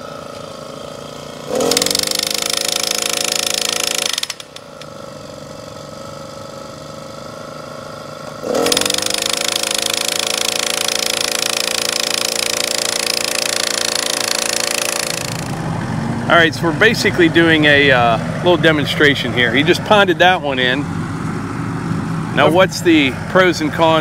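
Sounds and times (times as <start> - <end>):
post driver engine revving: 0.0 - 5.0, 8.2 - 24.0
post driver hammering: 1.6 - 4.8, 8.5 - 15.6.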